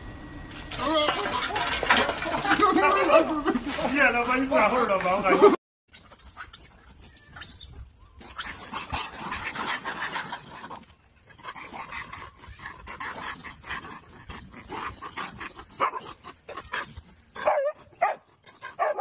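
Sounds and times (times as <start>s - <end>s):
dog barking and yipping: 15.8s - 16.1s, 16.7s - 19.0s.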